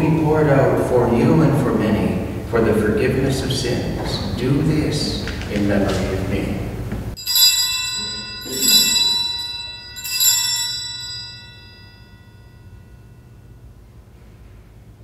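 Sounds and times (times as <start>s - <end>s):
altar bells ringing: 7.2s - 13.9s.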